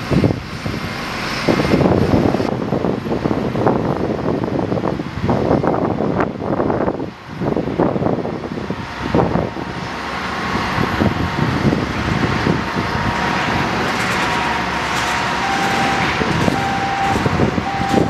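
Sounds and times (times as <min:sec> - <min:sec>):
aircraft tug engine: 0:00.0 - 0:18.0
jet engine rush: 0:00.0 - 0:18.0
steady high whine: 0:11.5 - 0:18.0.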